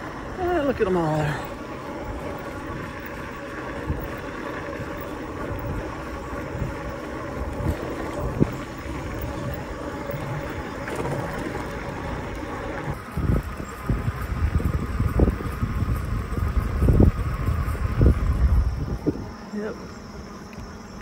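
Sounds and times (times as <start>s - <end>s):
wind over microphone: 0.0s - 19.7s
bike tire road noise: 0.0s - 21.0s.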